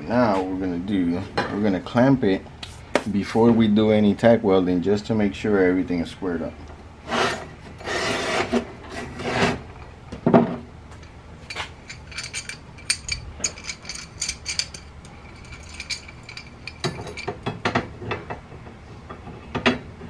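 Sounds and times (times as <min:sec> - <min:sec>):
light metallic clinks and taps: 0:11.0 - 0:17.8.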